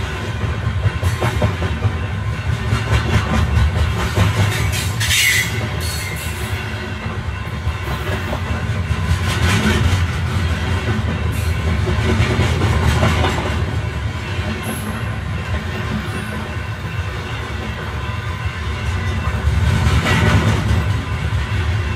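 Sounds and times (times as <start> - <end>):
wheels rattling on rails: 0.0 - 21.9.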